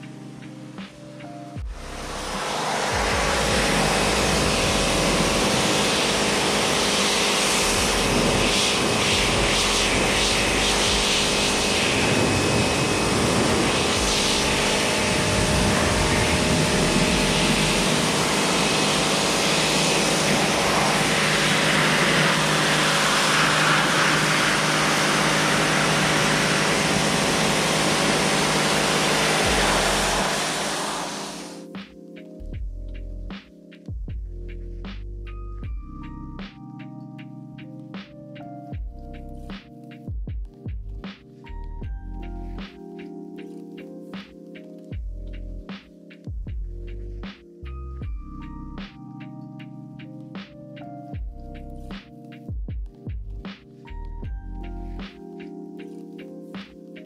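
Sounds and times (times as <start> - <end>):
pressure washer pump hum: 1.8 - 31.6
water jet hissing: 2.2 - 31.6.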